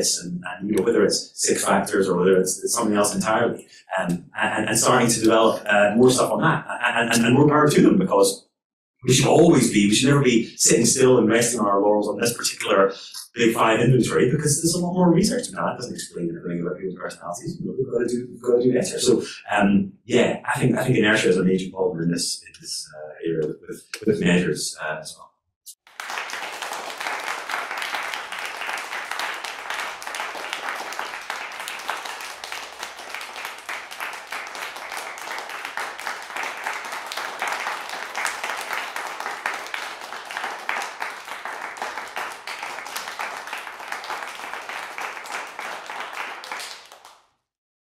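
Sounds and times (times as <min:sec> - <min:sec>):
audience applauding: 0:25.9 - 0:47.2.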